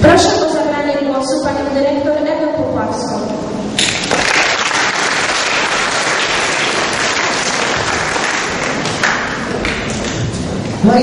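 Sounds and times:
crowd applauding: 3.8 - 10.3.

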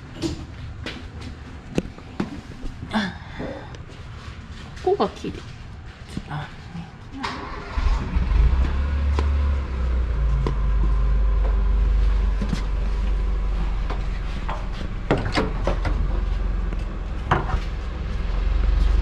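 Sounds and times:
steady low rumble: 7.8 - 19.0.

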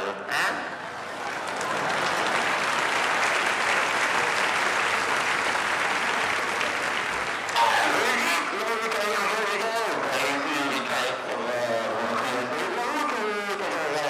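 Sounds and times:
audience applauding: 0.8 - 11.6.

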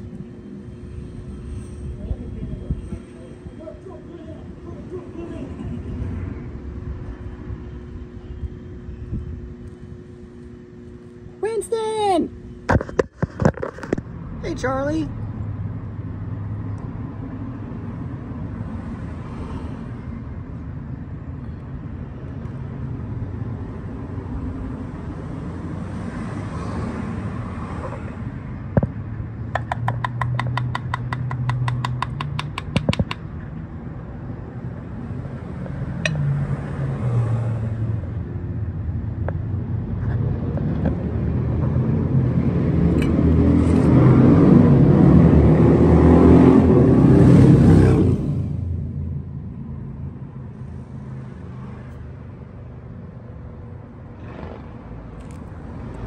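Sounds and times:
vehicle engine humming: 0.0 - 26.0, 26.9 - 56.0
rapid clicks: 29.6 - 33.2.

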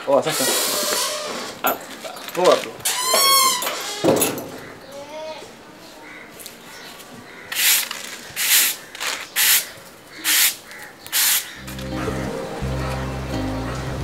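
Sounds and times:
broom sweeping concrete floor: 7.6 - 8.8
music with low notes: 11.6 - 14.0.

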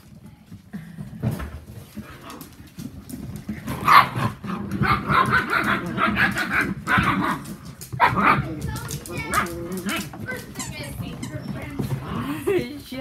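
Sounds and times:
puppies barking and yipping: 2.2 - 12.6.

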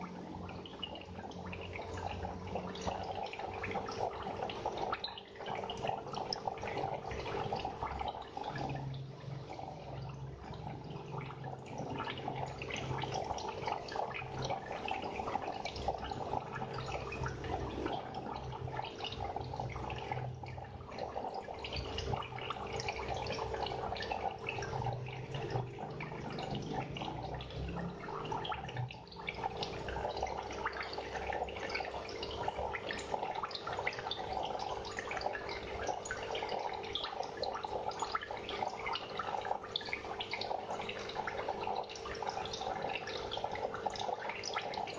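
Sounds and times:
aquarium water trickling and bubbling: 0.0 - 44.9.

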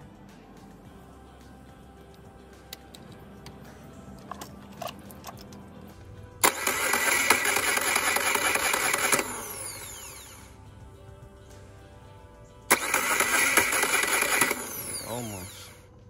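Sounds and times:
starter cranking outboard engine: 6.4 - 10.5, 12.7 - 15.8.

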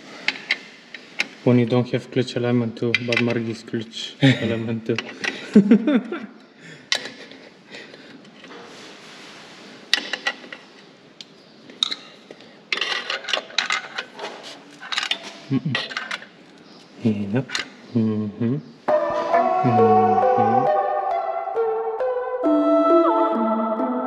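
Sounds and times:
metal tools clinking and scraping: 11.8 - 16.4.

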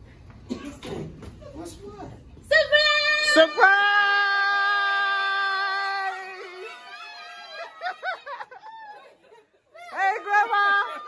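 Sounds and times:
woman shouting: 2.5 - 7.8, 9.8 - 11.0.

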